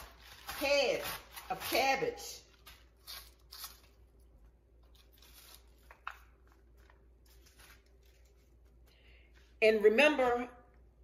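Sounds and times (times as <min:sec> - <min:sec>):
cabbage shredded on mandoline: 0:00.0 - 0:03.9.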